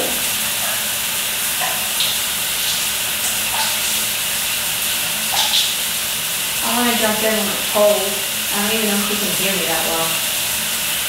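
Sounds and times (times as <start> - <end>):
shower water spraying on tiles: 0.0 - 11.0.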